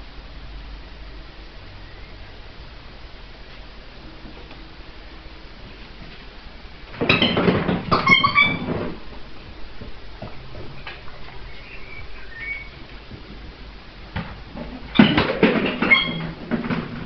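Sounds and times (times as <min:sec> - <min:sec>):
puppy clattering and scuffling: 0:06.9 - 0:17.0
high toy squeaks: 0:07.9 - 0:08.6.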